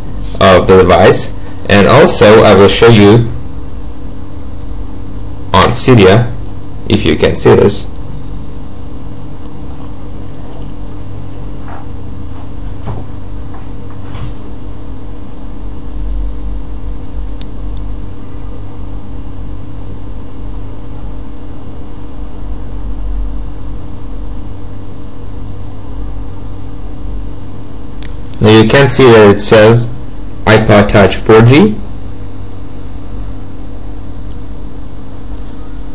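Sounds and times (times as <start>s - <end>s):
steady low hum: 0.0s - 35.9s.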